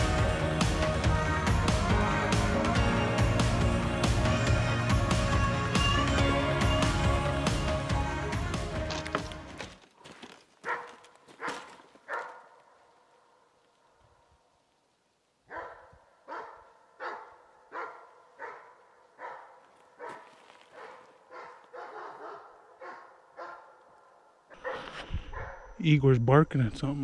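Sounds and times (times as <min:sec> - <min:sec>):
dog barking: 0:10.6 - 0:13.5, 0:15.5 - 0:25.7.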